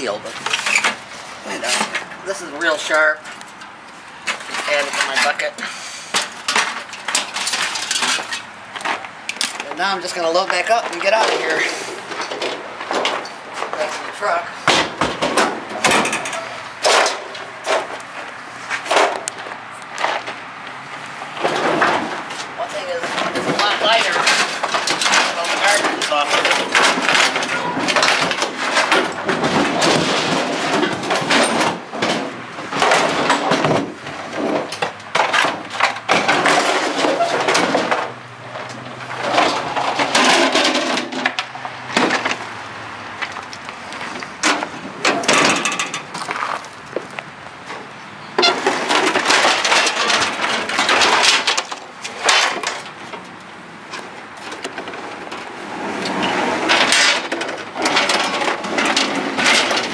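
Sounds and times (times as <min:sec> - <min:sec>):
refrigerator scraping on truck bed: 0:21.2 - 0:42.5, 0:47.7 - 0:53.2, 0:53.8 - 0:59.9.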